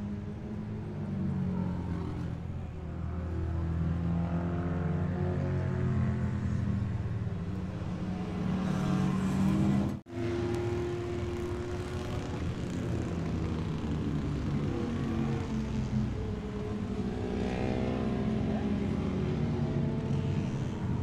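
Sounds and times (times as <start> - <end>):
two-stroke motorcycle engine: 10.3 - 18.5.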